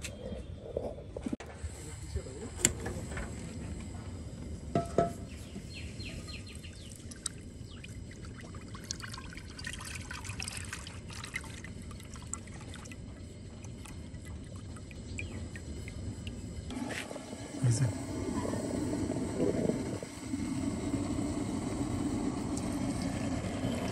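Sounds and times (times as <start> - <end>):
oil pouring into pan: 6.8 - 16.4.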